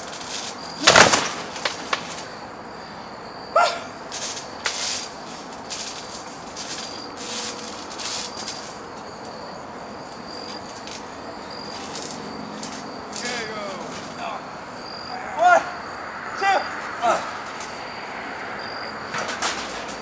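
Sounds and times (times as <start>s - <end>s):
insects chirping: 0.0s - 20.0s
short yelp: 3.5s - 3.9s.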